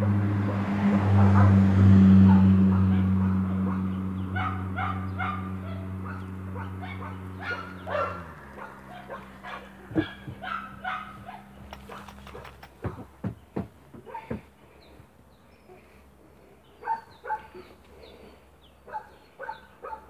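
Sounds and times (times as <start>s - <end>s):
vehicle engine hum: 0.0s - 20.0s
dog yipping: 4.4s - 12.6s, 16.8s - 17.7s.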